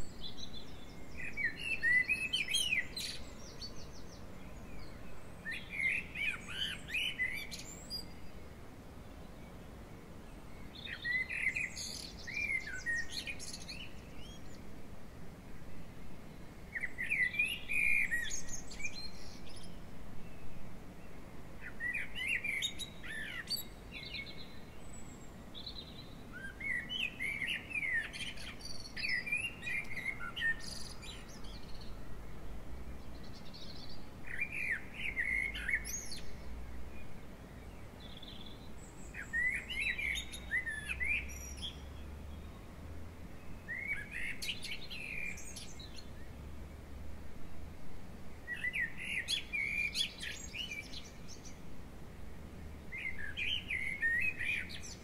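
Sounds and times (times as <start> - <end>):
songbird singing: 0.0 - 55.0.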